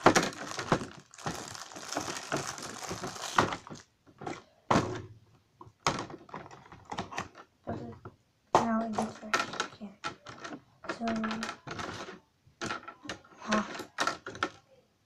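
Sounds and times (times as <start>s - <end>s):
plastic wrapping crackling: 0.0s - 3.9s.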